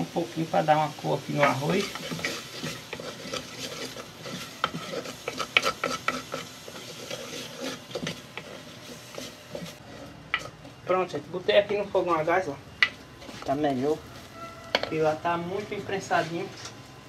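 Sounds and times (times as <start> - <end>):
faint sizzle: 0.0 - 17.0
spoon scraping stone pot: 1.3 - 10.9, 12.8 - 15.0.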